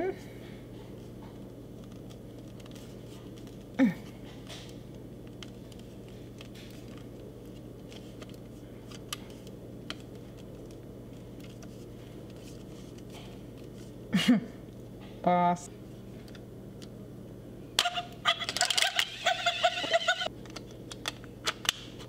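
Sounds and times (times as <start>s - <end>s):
room hum: 0.0s - 22.0s
plastic toy clicking and creaking: 17.8s - 19.2s.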